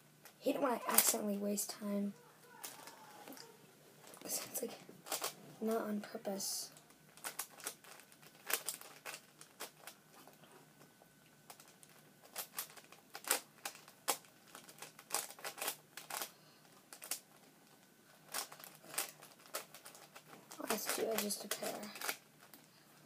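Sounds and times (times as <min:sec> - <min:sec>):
puzzle cube plastic layers clicking: 0:05.0 - 0:05.4, 0:07.2 - 0:10.0, 0:11.5 - 0:16.3, 0:16.9 - 0:17.2, 0:18.3 - 0:22.7.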